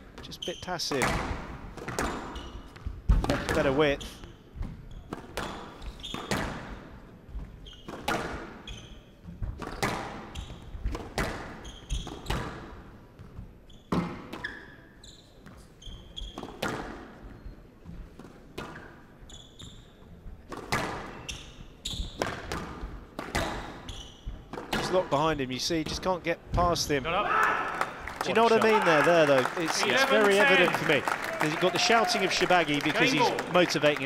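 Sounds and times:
squash ball hits: 0:00.9 - 0:02.4, 0:03.0 - 0:03.7, 0:07.9 - 0:08.6, 0:09.4 - 0:12.7, 0:20.5 - 0:21.2, 0:21.9 - 0:25.2
shoes squeaking on wooden floor: 0:11.5 - 0:12.5, 0:13.4 - 0:16.5, 0:19.2 - 0:20.2, 0:21.0 - 0:22.4, 0:23.3 - 0:24.9.

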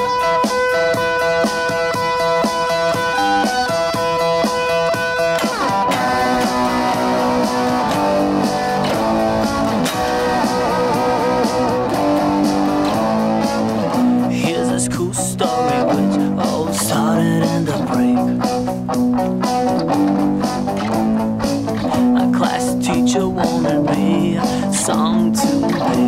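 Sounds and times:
drum machine beat: 0:00.0 - 0:26.0
electric guitar lead: 0:00.0 - 0:26.0.

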